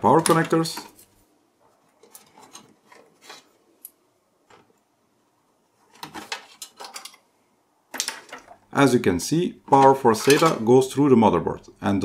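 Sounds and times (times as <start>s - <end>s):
cables rustling: 0.0s - 4.8s.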